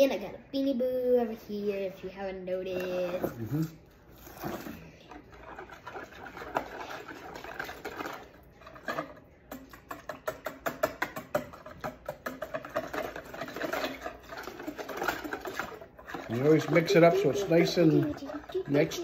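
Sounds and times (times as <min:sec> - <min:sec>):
wire whisk beating eggs in bowl: 0:05.1 - 0:19.0.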